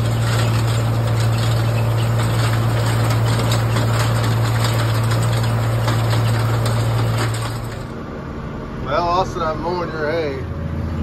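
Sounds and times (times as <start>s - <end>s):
hay rake clattering: 0.0s - 8.0s
tractor engine running: 0.0s - 9.8s.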